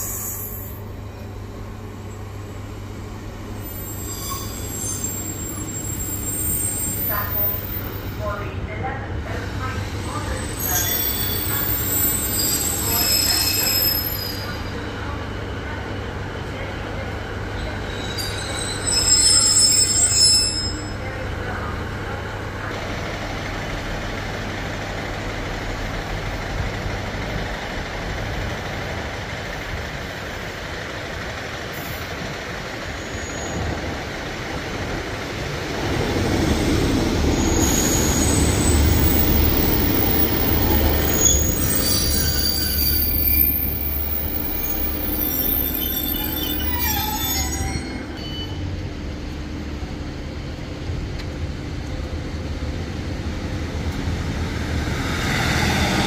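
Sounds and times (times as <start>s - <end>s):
wheels squealing on rails: 0.0s - 1.1s, 3.5s - 8.2s, 9.6s - 14.9s, 17.4s - 21.7s, 31.8s - 48.8s
train engine and wheel rumble: 0.0s - 56.0s.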